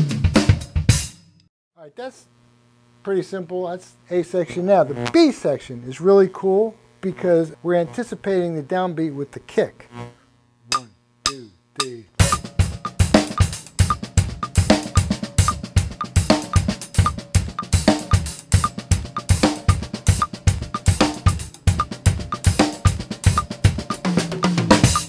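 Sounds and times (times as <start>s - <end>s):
drum kit groove: 0.0s - 1.3s, 10.7s - 25.0s
metronome click: 10.7s - 12.5s, 13.2s - 19.6s, 20.2s - 25.0s.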